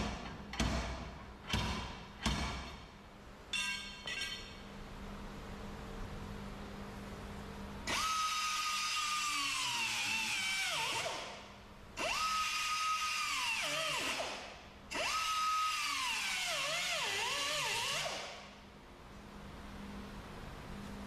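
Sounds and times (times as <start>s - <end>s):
air grinder whining on metal: 7.9s - 11.3s, 12.0s - 18.4s.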